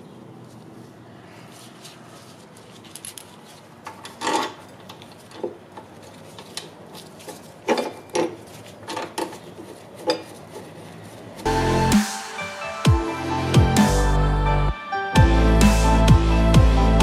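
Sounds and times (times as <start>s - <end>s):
metal parts clinking: 2.5s - 10.3s.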